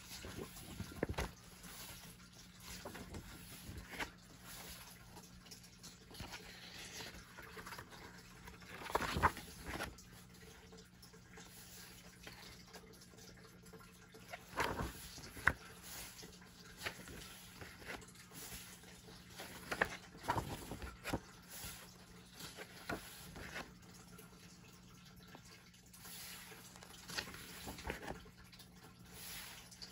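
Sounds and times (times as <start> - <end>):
paper pages rustling: 0.0 - 5.3, 6.0 - 10.2, 14.3 - 24.0, 25.4 - 28.4
faint steady hum: 0.0 - 29.9.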